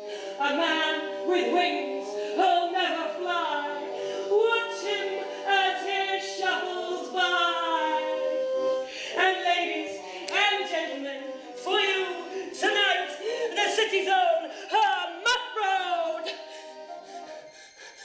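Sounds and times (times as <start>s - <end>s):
voices singing long sliding notes: 0.0s - 13.6s.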